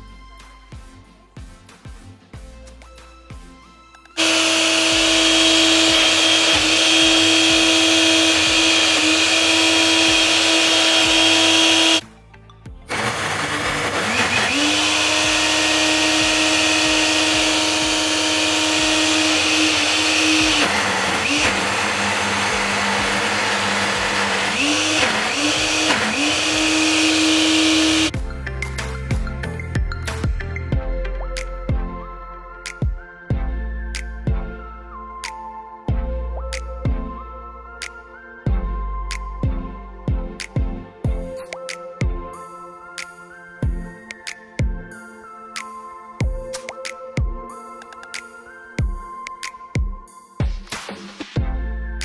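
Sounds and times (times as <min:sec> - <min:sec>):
blender motor running: 0:04.2 - 0:12.0, 0:12.9 - 0:28.2.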